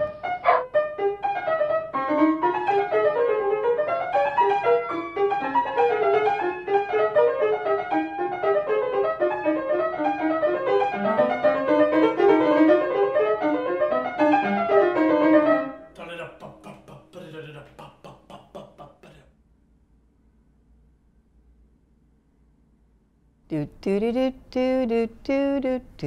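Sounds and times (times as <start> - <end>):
fast piano music: 0.2 - 15.8.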